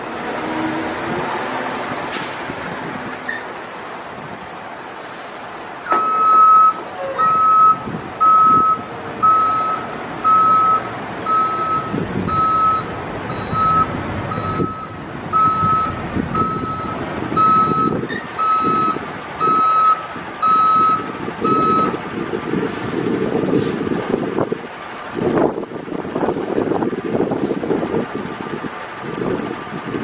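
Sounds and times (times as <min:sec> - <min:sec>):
diesel engine rumble: 0:00.0 - 0:30.0
truck backup alarm beeping: 0:05.8 - 0:22.4.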